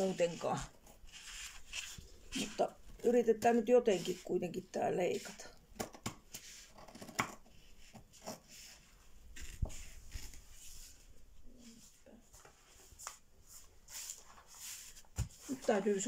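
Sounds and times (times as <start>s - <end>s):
material crinkling: 0.0s - 3.3s, 6.4s - 16.0s.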